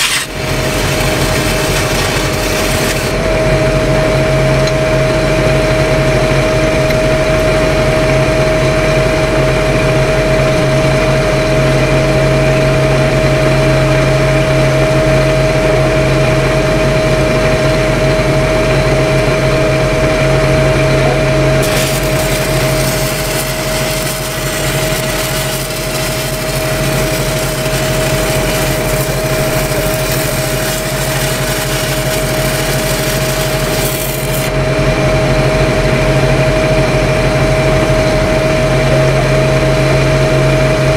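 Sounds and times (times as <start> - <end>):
welding arc hissing and crackling: 0.0 - 3.3, 21.6 - 35.1
welding machine engine whining: 0.0 - 40.9.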